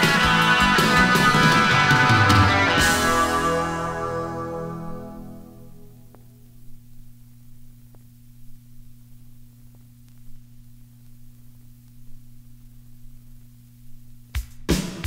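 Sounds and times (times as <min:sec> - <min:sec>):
vinyl surface hiss: 0:00.0 - 0:14.8
low electrical hum: 0:02.8 - 0:14.7
vinyl record clicks: 0:06.0 - 0:14.7.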